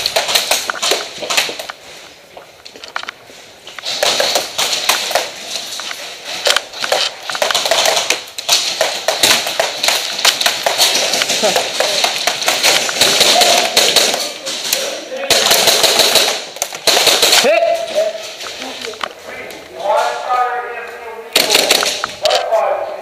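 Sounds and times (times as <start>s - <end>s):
airsoft guns firing: 0.0s - 1.7s, 3.8s - 5.5s, 6.4s - 17.9s, 21.3s - 22.3s.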